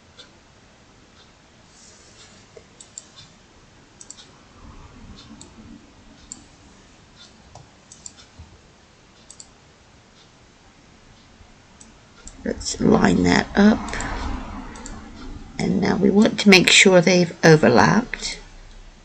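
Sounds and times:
computer mouse clicking: 2.8 - 3.3, 4.0 - 4.3, 7.2 - 8.5, 9.2 - 9.6.

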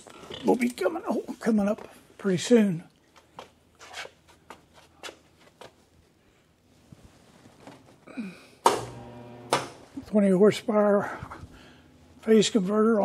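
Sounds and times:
steady electrical hum: 0.0 - 13.0
shuffling footsteps: 3.0 - 8.0
loud switch clunk: 8.6 - 9.8.

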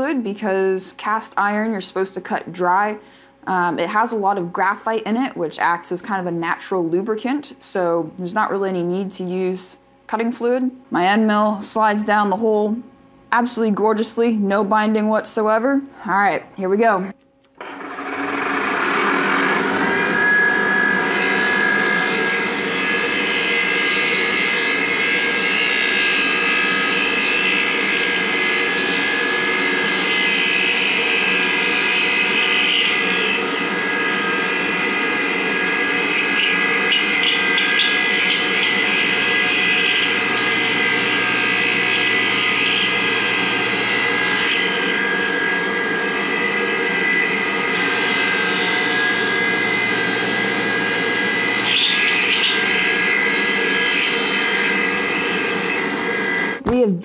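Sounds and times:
end mill cutting metal: 17.6 - 56.6
milling spindle whine: 17.6 - 56.6.

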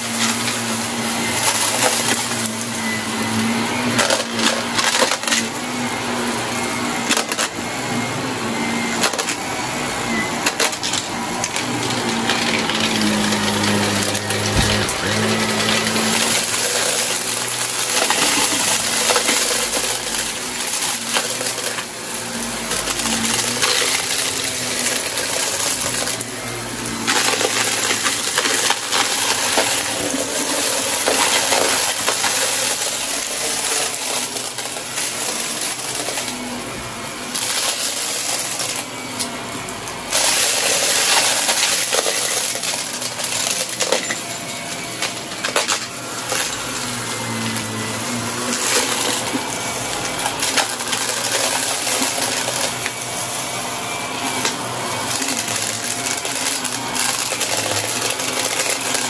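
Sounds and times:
vacuum cleaner running: 0.0 - 59.0
debris crackling and rattling: 10.4 - 36.3, 40.0 - 47.3.

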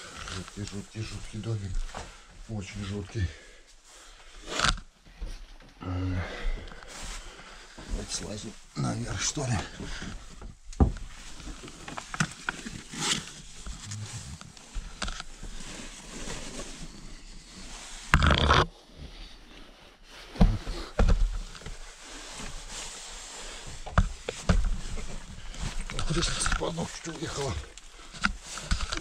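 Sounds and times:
person climbing a ladder: 9.4 - 18.7, 20.3 - 29.0.

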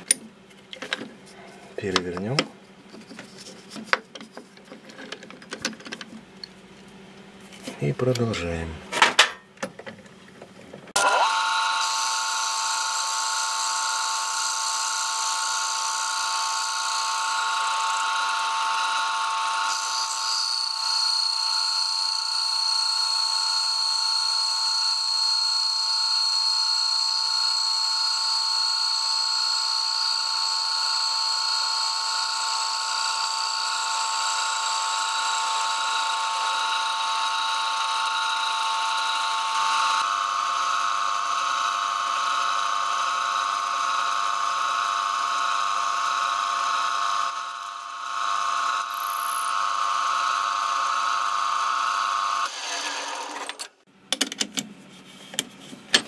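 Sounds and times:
lathe whining: 10.9 - 53.6
drill bit boring into wood: 11.0 - 53.7.

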